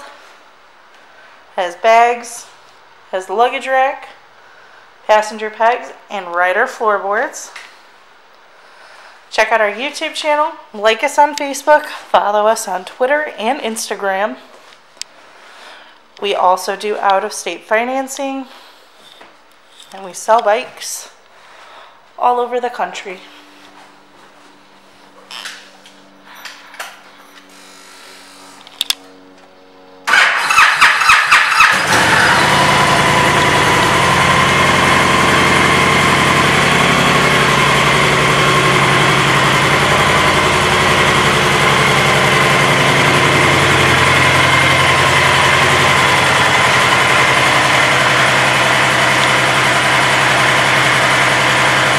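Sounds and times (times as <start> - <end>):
motorcycle engine cranking: 30.1 - 51.9
motorcycle engine idling: 30.1 - 51.9.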